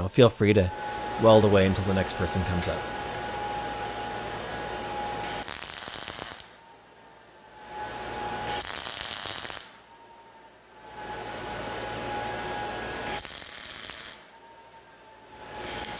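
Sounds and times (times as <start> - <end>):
welding arc crackling and sizzling: 5.1 - 6.6, 8.4 - 9.8, 12.9 - 14.3, 15.6 - 15.9.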